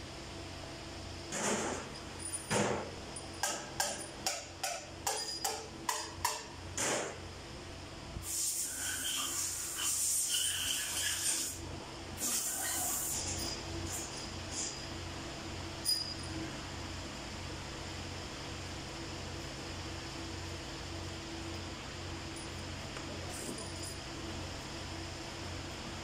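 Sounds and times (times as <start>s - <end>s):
metal tools knocking and clanking: 2.2s - 5.7s
rough hissing or scraping: 8.2s - 11.6s, 12.2s - 14.8s.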